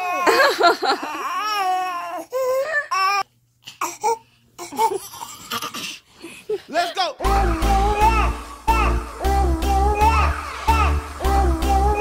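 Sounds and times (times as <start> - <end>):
infant crying: 0.0 - 5.8.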